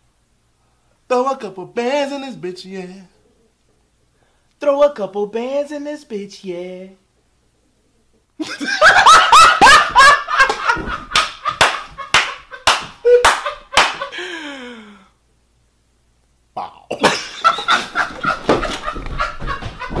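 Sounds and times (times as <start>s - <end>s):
person laughing hard: 8.4s - 14.8s, 16.9s - 20.0s.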